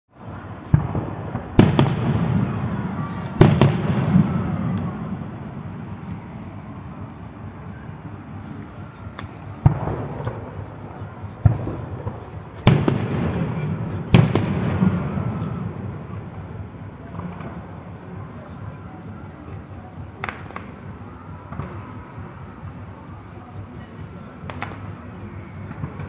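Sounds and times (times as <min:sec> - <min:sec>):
fireworks bangs: 0:00.2 - 0:06.5, 0:09.4 - 0:18.0.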